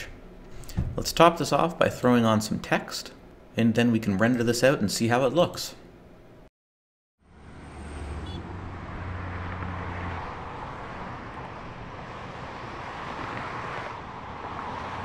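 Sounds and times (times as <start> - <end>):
passing cars: 7.2 - 15.0.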